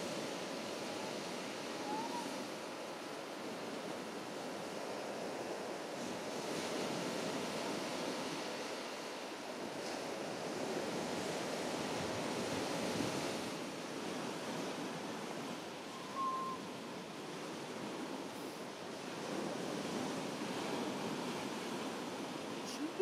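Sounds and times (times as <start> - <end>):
wind noise: 0.0 - 2.7
sea surf washing on beach: 0.0 - 23.0.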